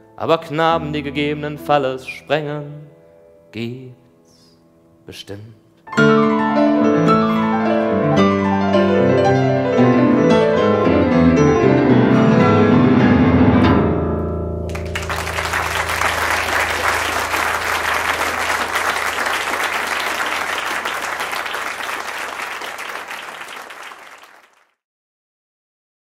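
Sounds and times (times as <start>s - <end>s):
piano chord ringing: 5.9s - 17.8s
audience applause: 14.7s - 24.7s.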